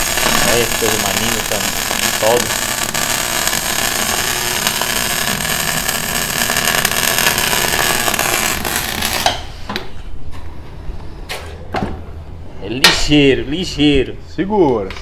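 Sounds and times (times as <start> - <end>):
arc welding crackle: 0.0 - 9.6.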